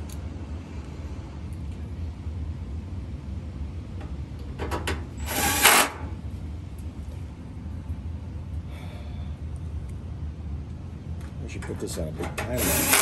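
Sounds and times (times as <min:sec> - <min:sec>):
steady low hum: 0:00.0 - 0:13.0
cordless drill driving a screw: 0:05.2 - 0:06.0, 0:12.6 - 0:13.0.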